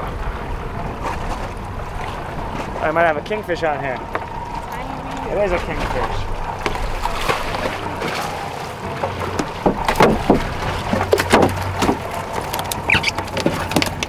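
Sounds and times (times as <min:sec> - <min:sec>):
outboard motor humming: 0:00.0 - 0:14.0
fish slapping against boat deck: 0:09.3 - 0:14.0.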